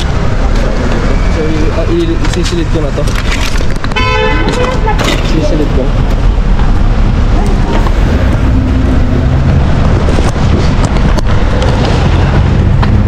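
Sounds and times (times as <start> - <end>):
street traffic rumble: 0.0 - 13.0
clicks and rattles: 2.2 - 5.4.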